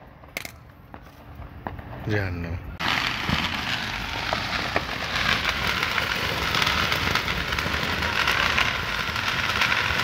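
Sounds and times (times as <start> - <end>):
firework crackles: 0.0 - 10.0
firework fountain hissing: 2.7 - 10.0.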